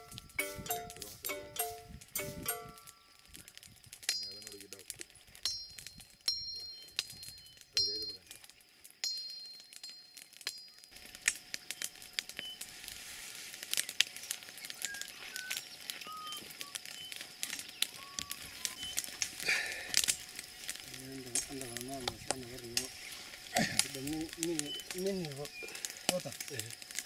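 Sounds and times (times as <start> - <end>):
brush fire crackling and popping: 0.0 - 27.0
bird chirps: 5.5 - 8.6, 13.8 - 19.4, 21.4 - 26.0.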